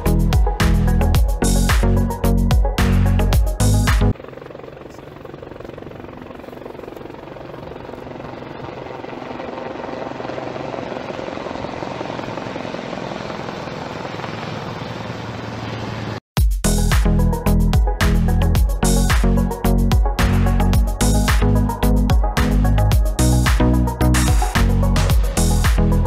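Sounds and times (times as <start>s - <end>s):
aircraft engine drone: 3.6s - 16.2s.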